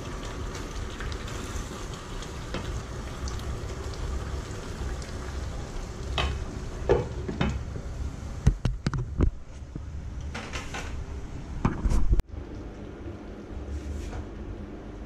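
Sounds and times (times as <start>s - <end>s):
sauce sizzling: 0.0s - 7.2s.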